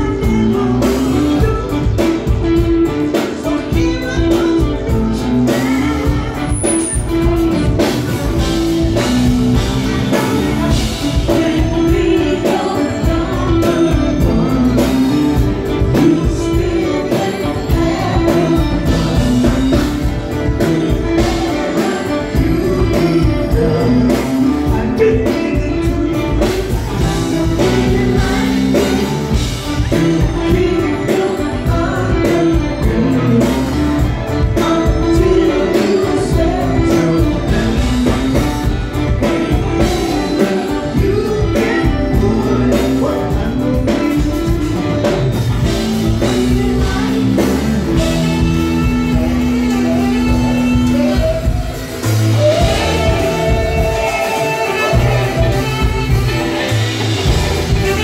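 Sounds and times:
women singing: 0:00.0 - 0:07.5, 0:08.6 - 0:44.8, 0:45.6 - 0:58.0
keyboards: 0:00.0 - 0:58.0
drum beat: 0:34.1 - 0:58.0.

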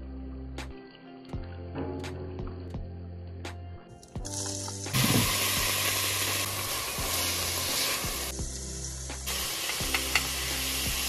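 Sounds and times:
onion and garlic sizzling: 0:04.2 - 0:11.0.

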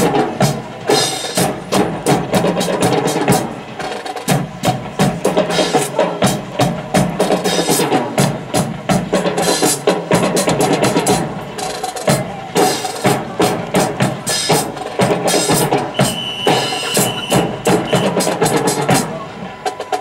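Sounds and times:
drum beating marching cadence: 0:00.0 - 0:20.0.

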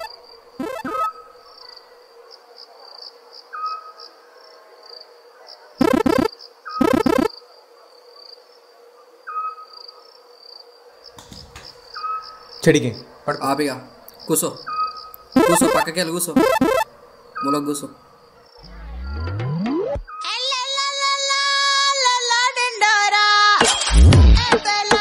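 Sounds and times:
crickets chirping: 0:00.0 - 0:04.2, 0:09.2 - 0:18.8.

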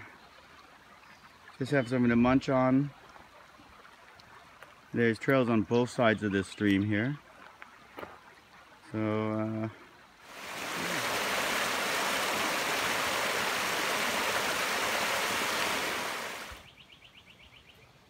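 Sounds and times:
creek water pouring over rock: 0:10.2 - 0:16.6.

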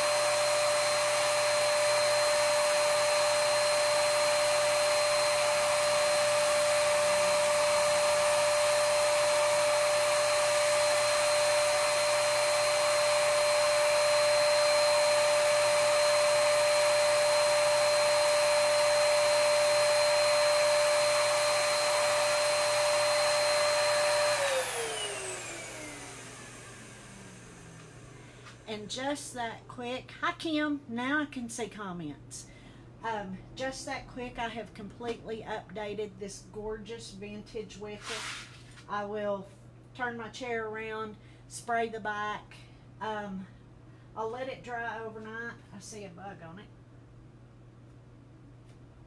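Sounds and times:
spray turbine whining: 0:00.0 - 0:28.8.

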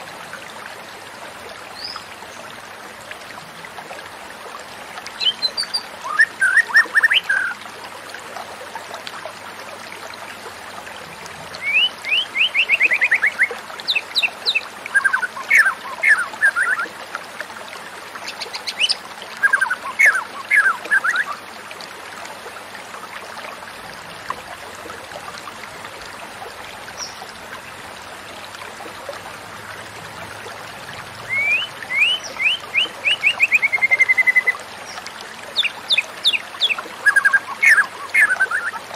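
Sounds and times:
bird singing whistled notes: 0:11.6 - 0:16.8, 0:31.3 - 0:34.5.

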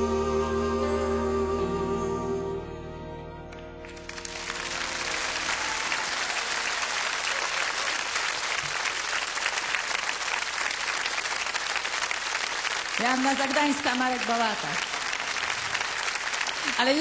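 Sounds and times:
held music chord: 0:00.0 - 0:06.1
audience applauding: 0:03.8 - 0:17.0.

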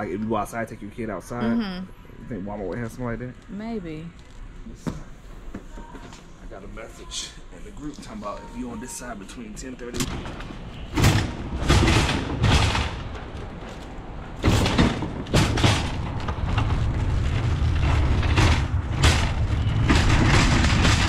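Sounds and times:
shopping cart wheels rattling: 0:11.0 - 0:21.0.

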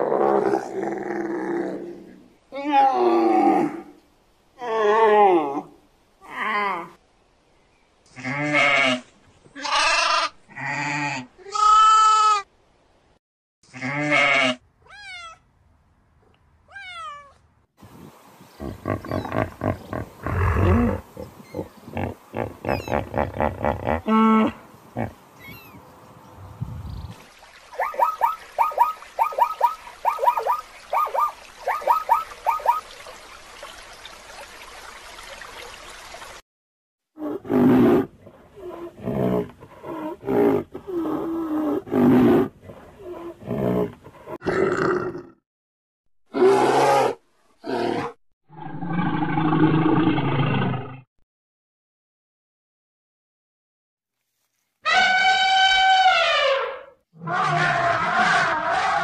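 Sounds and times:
animal chirps: 0:22.6 - 0:23.2, 0:25.4 - 0:25.8, 0:27.8 - 0:32.8
rhythmic pulsing calls: 0:27.7 - 0:33.0.

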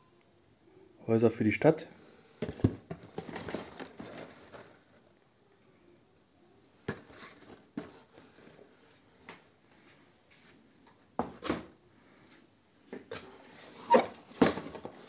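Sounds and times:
cardboard boxes tapping and rustling: 0:02.4 - 0:04.9, 0:14.0 - 0:15.0.

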